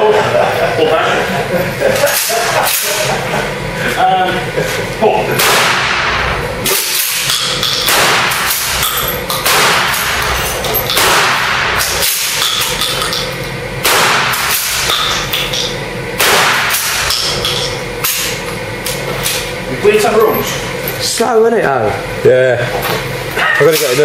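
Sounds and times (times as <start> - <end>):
shotgun shots echoing indoors: 5.4 - 12.8, 13.8 - 15.6, 16.2 - 18.3.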